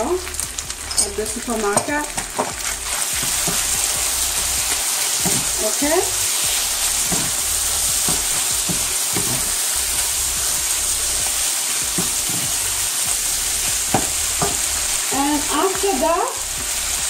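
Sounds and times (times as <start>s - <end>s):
chicken sizzling in skillet: 0.0s - 17.0s
wooden spoon scraping pan: 1.8s - 5.7s, 6.5s - 10.6s.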